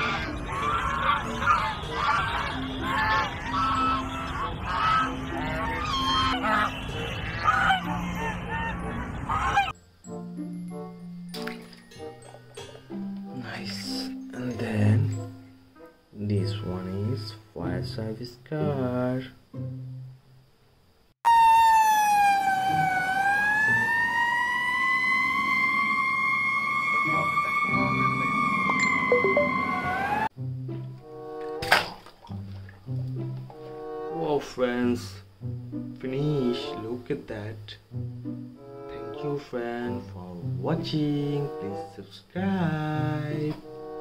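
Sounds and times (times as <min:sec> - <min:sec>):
geese honking: 0:00.0 - 0:09.8, 0:22.0 - 0:30.3
fire engine siren wailing: 0:21.2 - 0:30.3.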